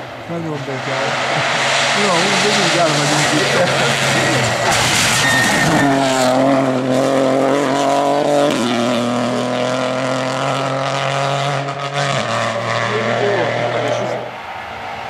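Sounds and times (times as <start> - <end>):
rally car engines revving: 0.0 - 15.0.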